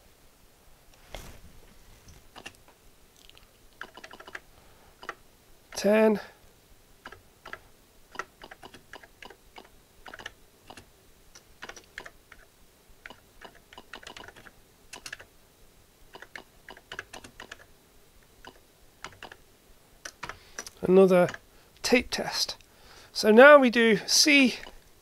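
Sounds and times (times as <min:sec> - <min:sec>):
computer keyboard key clicks: 0:03.8 - 0:04.4, 0:07.0 - 0:10.8, 0:13.0 - 0:15.3, 0:18.4 - 0:19.4.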